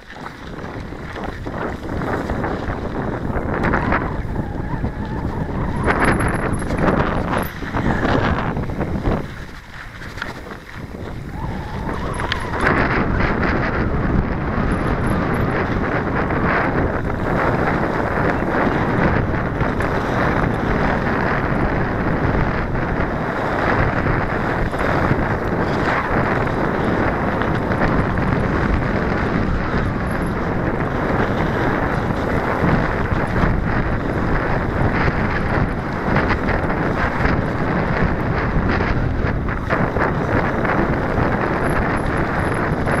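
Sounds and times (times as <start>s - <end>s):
wind buffeting microphone: 0.0s - 43.0s
faint knocks from trail bumps: 6.0s - 11.2s.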